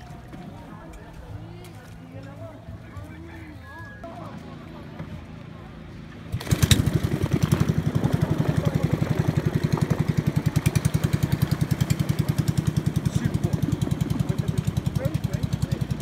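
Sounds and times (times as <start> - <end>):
small boat engine pulsing: 4.0 - 16.0.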